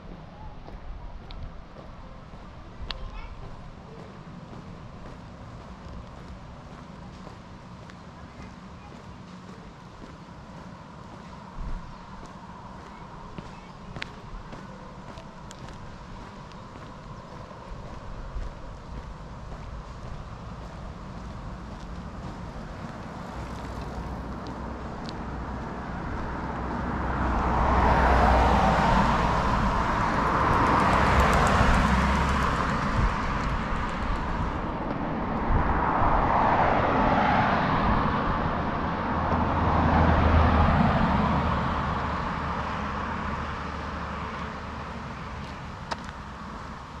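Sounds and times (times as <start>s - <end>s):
cars driving past: 0.0s - 47.0s.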